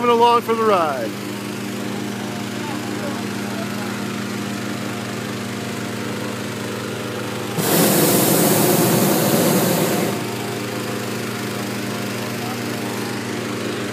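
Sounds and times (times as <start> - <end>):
small petrol engine running: 1.2 - 13.9
propane burner blast: 7.5 - 11.1.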